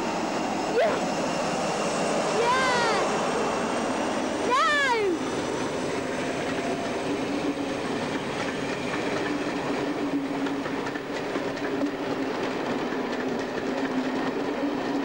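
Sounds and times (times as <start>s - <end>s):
train wheels clattering over rails: 5.3s - 15.0s.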